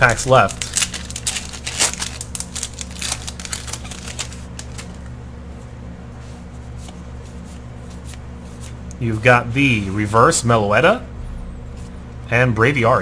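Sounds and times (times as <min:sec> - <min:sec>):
cards clicking and rustling: 0:00.0 - 0:05.0
low hum: 0:10.8 - 0:13.0.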